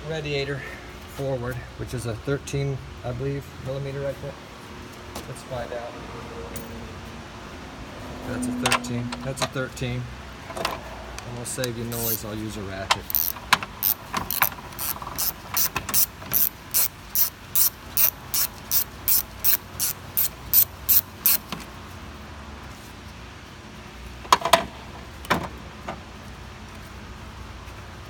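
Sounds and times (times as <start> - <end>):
ratchet wrench clicking: 11.6 - 12.2, 13.0 - 21.5.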